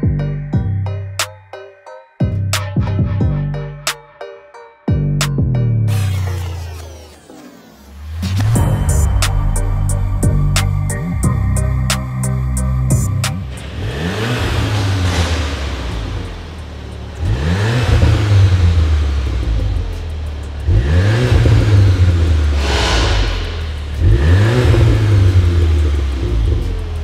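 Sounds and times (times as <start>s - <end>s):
car engine revving: 5.9s - 27.0s.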